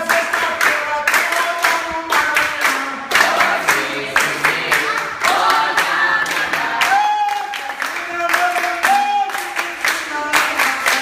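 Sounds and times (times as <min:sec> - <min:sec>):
group singing: 0:00.0 - 0:08.6
hand clapping: 0:00.0 - 0:11.0.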